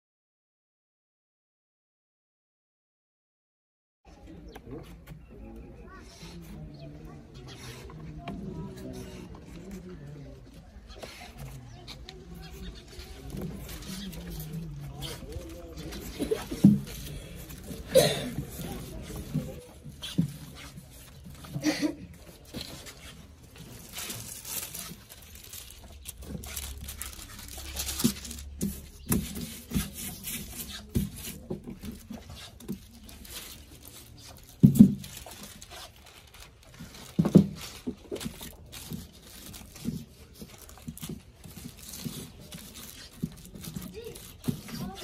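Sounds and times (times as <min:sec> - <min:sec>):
foil paper crinkling and rustling: 0:09.6 - 0:45.0.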